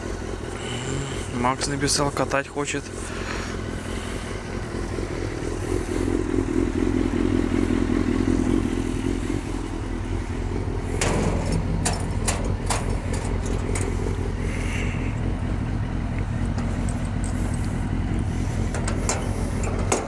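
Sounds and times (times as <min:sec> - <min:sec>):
low rumble: 0:02.8 - 0:19.8.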